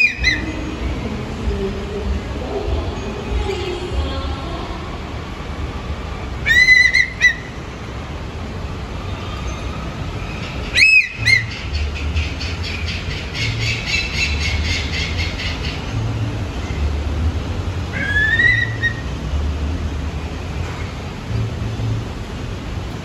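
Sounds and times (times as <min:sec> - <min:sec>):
high chirping notes: 0:00.0 - 0:01.0
low background rumble: 0:10.0 - 0:23.0
whistle-like animal calls: 0:10.8 - 0:11.5, 0:18.0 - 0:19.0.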